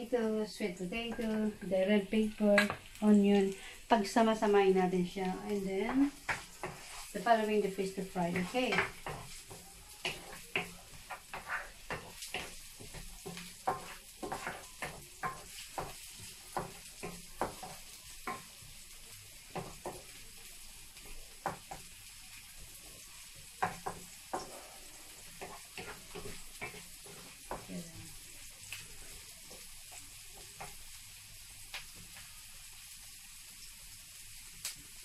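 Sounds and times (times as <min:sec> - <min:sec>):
onion sizzling in oil: 0:00.0 - 0:35.0
wooden spatula scraping pan: 0:05.8 - 0:18.4, 0:23.6 - 0:27.7.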